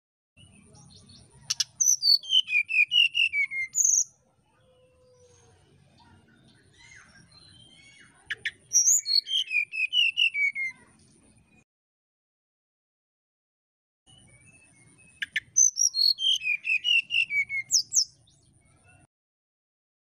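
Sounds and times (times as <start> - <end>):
bird singing flute-like whistles: 1.8 - 4.2, 7.4 - 10.8, 14.1 - 18.1.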